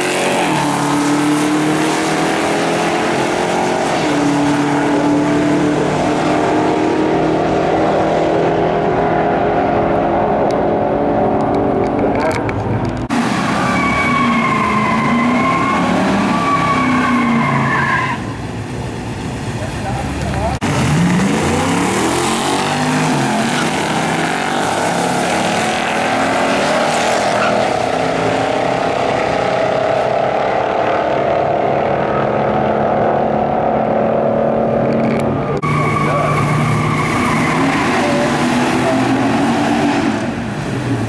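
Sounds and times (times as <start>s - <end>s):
tire screech: 0.0s - 11.0s, 11.8s - 18.7s, 19.7s - 41.0s
car engines revving: 0.0s - 41.0s
engine rumbling: 0.0s - 41.0s.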